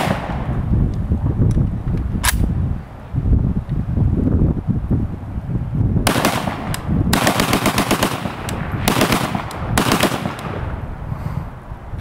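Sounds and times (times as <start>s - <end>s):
rapid gunshots: 0.0s - 0.4s, 6.1s - 10.6s.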